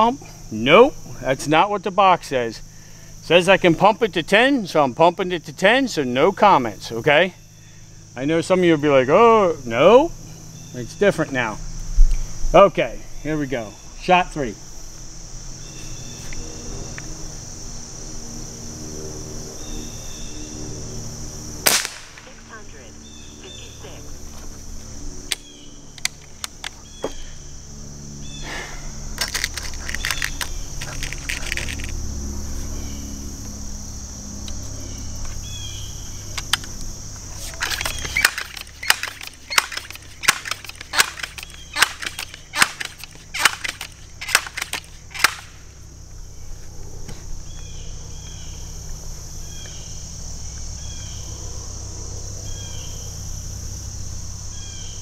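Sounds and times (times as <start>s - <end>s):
air rifle pump clacking: 29.2s - 31.9s, 37.5s - 45.5s.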